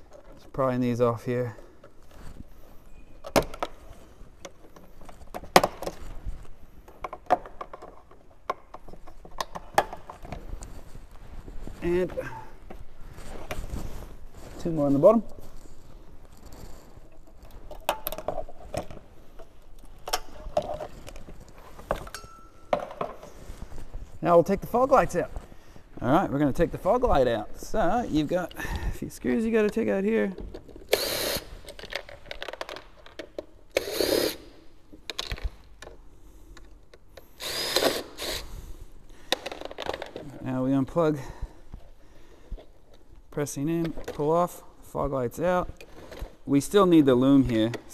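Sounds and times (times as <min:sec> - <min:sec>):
handling clicks and rattles: 0:03.2 - 0:11.8, 0:12.6 - 0:25.5, 0:31.5 - 0:33.7
drill-driver motor whirring: 0:30.9 - 0:31.5, 0:33.8 - 0:34.4, 0:37.4 - 0:38.5.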